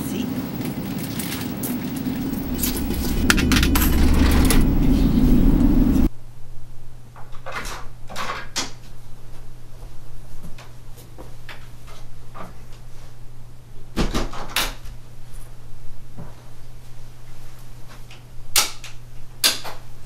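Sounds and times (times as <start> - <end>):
steady low hum: 0.0 - 6.1
loud low rumble: 0.4 - 6.1.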